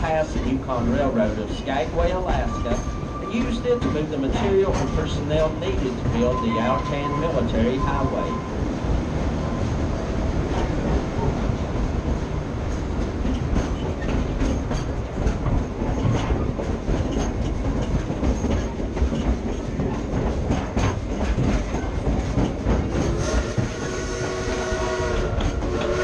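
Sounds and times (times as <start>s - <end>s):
wheels clicking over rail joints: 0.0s - 8.1s, 12.1s - 23.8s, 25.2s - 26.0s
train cars rumbling: 0.0s - 26.0s
steam whistle blowing: 23.1s - 26.0s.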